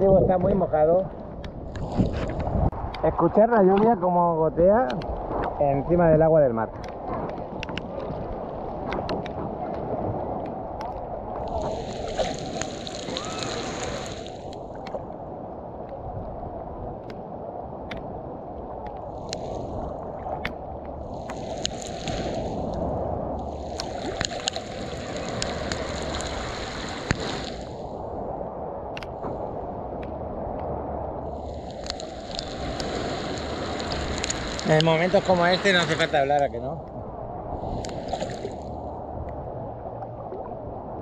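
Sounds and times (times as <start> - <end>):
heavy rain on sea surface: 11.3 - 14.8, 21.0 - 28.2, 31.2 - 36.6
water sloshing: 11.4 - 15.0.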